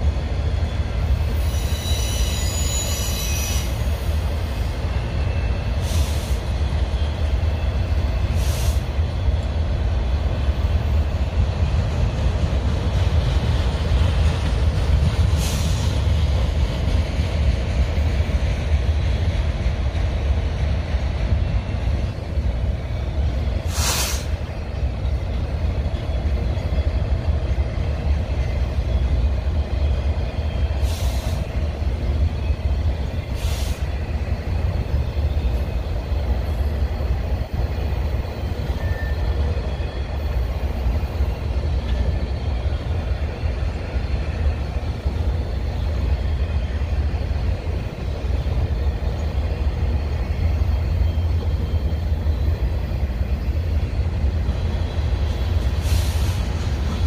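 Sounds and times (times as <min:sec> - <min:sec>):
train wheels rumbling on rail: 0:00.0 - 0:57.0
short high-pitched hisses: 0:08.4 - 0:08.9, 0:23.6 - 0:24.4, 0:30.8 - 0:31.5, 0:33.4 - 0:34.0, 0:55.8 - 0:56.6.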